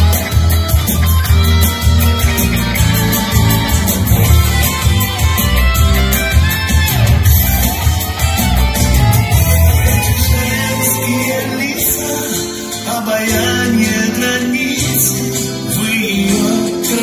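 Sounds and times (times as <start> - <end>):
steady drum beat: 0.0 - 11.0
loud instrumental pop music: 0.0 - 17.0.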